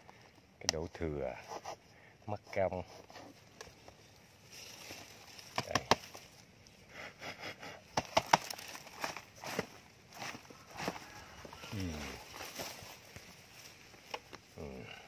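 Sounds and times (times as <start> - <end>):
snake trap clicks and knocks: 5.5 - 6.2, 8.0 - 9.7.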